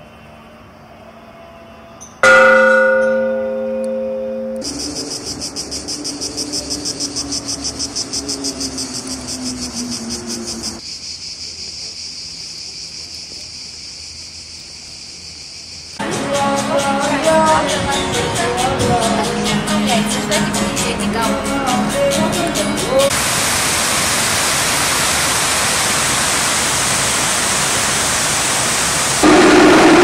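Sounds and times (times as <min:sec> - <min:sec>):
hanging bell ringing: 0:02.0 - 0:05.0.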